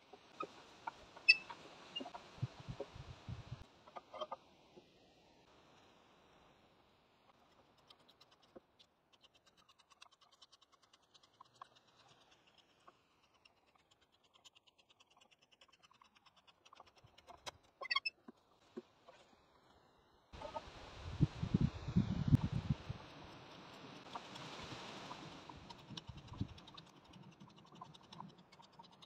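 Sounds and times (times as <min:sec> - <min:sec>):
auger bit scratching wood: 0:07.4 - 0:18.4, 0:22.9 - 0:29.0.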